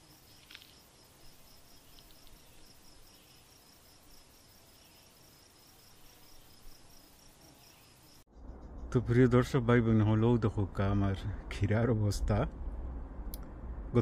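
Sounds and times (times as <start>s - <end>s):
insect chirping: 0.0s - 9.0s.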